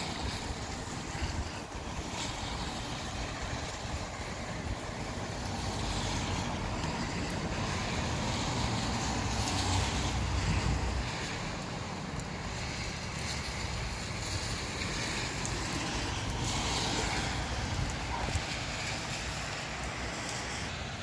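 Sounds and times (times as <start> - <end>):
gusty wind: 0.0 - 21.0
rain shower hiss: 0.0 - 21.0.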